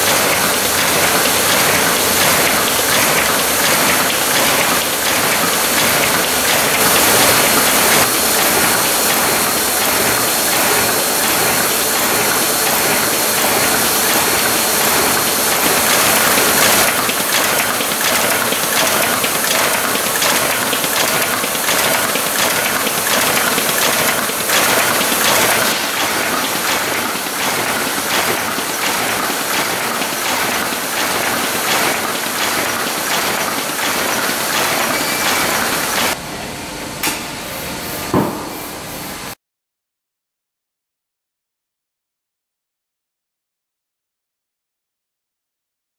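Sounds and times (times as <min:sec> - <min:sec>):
folding machine whirring: 0:00.0 - 0:36.2
regular clicking of sheets feeding: 0:00.0 - 0:36.2.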